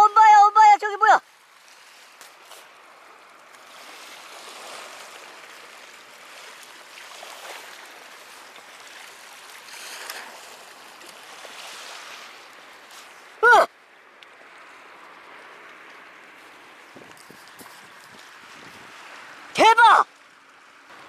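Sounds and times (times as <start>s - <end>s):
waves lapping against rocks: 1.1s - 19.5s.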